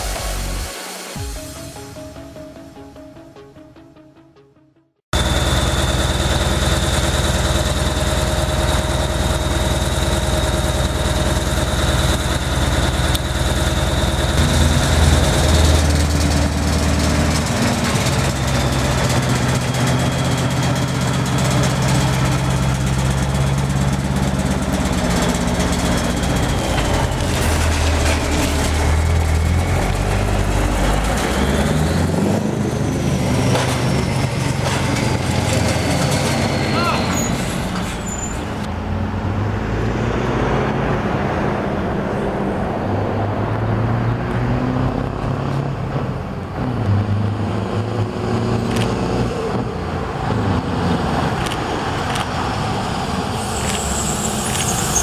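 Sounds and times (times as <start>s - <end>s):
diesel truck engine revving: 5.2s - 55.0s
thin high whistle: 53.4s - 55.0s.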